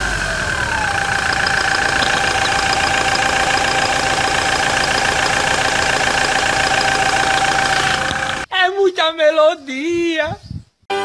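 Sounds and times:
high whine: 0.0 - 8.5
truck engine idling: 0.0 - 8.5.

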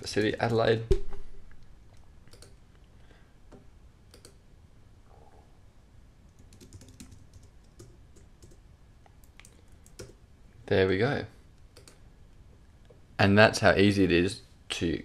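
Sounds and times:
faint keyboard typing: 1.6 - 4.4, 6.2 - 10.2, 11.6 - 12.0.

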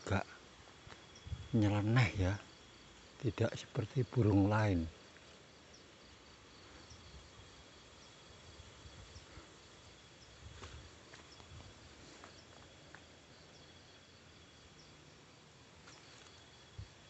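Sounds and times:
insect trill: 0.0 - 17.0
pulsing insect call: 0.0 - 17.0
rustling in undergrowth: 5.0 - 14.2, 15.7 - 17.0.

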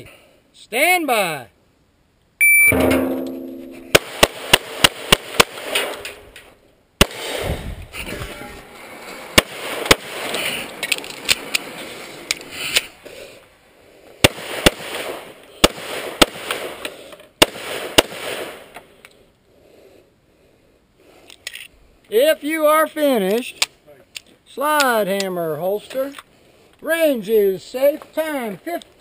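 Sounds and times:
pistol shots: 3.9 - 6.2, 7.0 - 7.5, 9.4 - 10.4, 14.2 - 16.8, 17.4 - 18.6.

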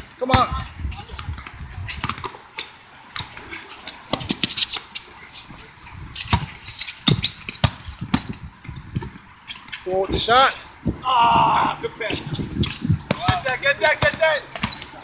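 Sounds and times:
basketball bouncing on asphalt: 0.0 - 3.4, 6.1 - 11.0, 12.1 - 15.0.

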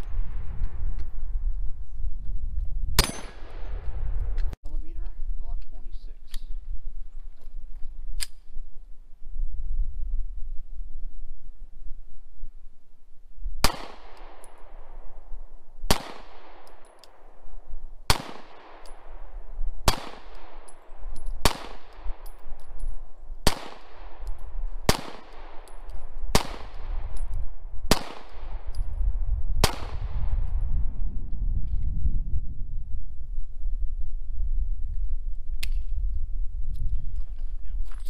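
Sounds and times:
pistol shots with echo: 3.0 - 3.7, 13.6 - 15.3, 15.9 - 17.4, 18.0 - 22.8, 23.4 - 28.9, 29.6 - 30.3.

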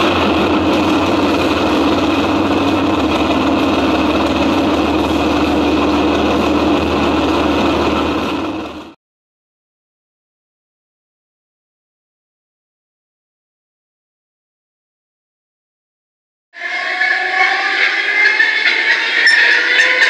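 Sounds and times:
large engine idling: 0.0 - 9.0.

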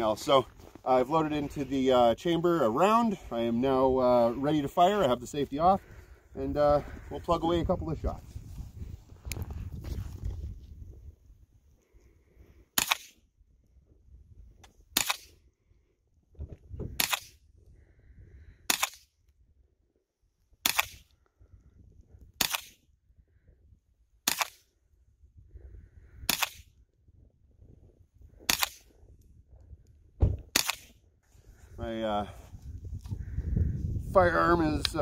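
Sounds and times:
rifle shots: 12.8 - 13.2, 15.0 - 15.4, 17.0 - 17.4, 18.7 - 19.1, 20.6 - 21.0, 22.4 - 22.8, 24.2 - 24.6, 26.3 - 26.7, 28.4 - 28.9, 30.5 - 31.0.

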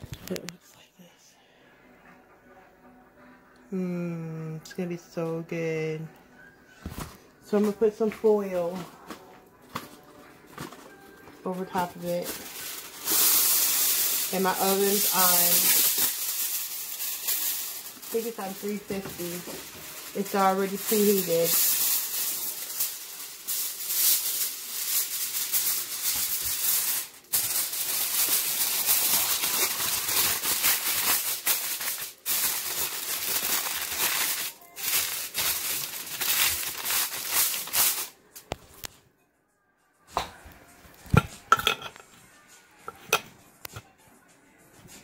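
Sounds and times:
aluminium foil crinkling: 7.5 - 38.9.

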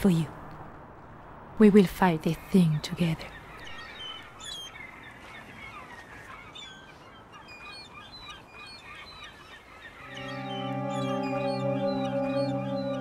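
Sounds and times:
flock of birds calling: 3.9 - 13.0
sustained music chord: 10.0 - 13.0.

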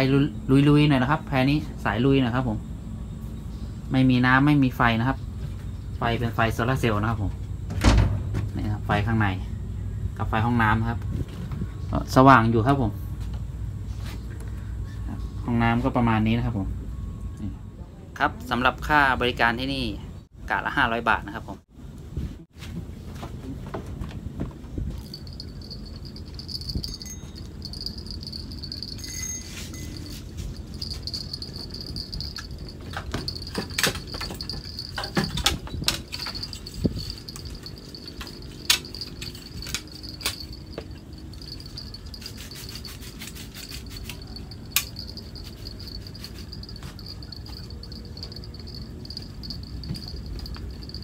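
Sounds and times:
night insects chirring: 0.0 - 10.8, 25.0 - 51.0
sharp clicks and knocks: 31.6 - 41.0.

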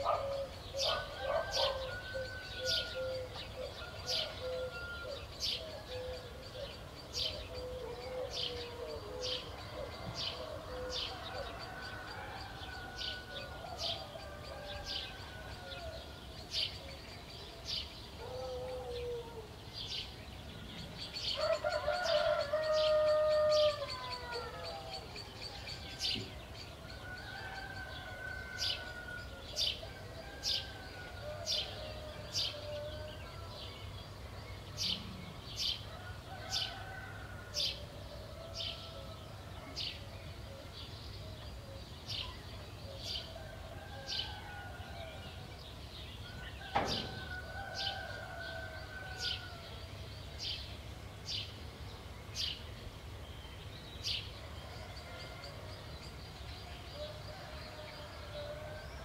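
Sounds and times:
soft wavering bird calls: 0.0 - 26.4.

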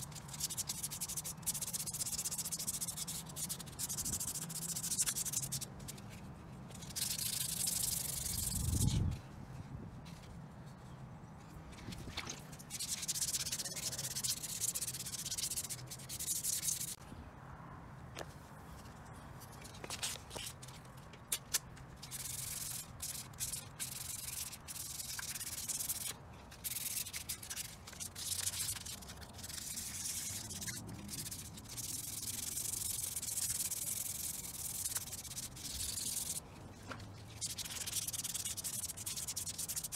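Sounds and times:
sandpaper rubbing strokes: 0.0 - 9.2, 12.4 - 17.0, 22.0 - 36.6, 37.2 - 39.9.

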